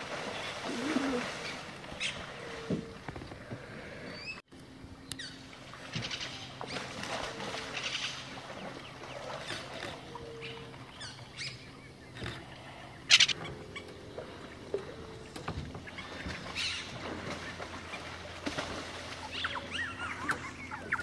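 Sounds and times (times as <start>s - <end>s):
birds chirping and whistling: 4.0s - 4.4s, 5.0s - 5.4s, 7.7s - 17.0s, 19.2s - 21.0s
bird rasping call: 9.4s - 14.0s, 19.2s - 21.0s.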